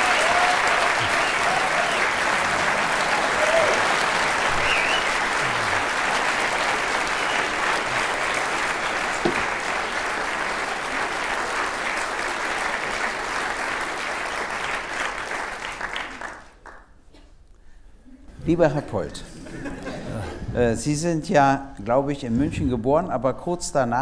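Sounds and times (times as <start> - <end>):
audience applauding: 0.0 - 16.9.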